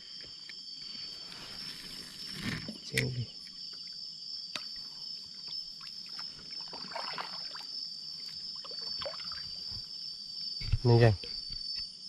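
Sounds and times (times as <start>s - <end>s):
night insects droning: 0.0s - 12.0s
paddle splashing water: 5.8s - 9.8s.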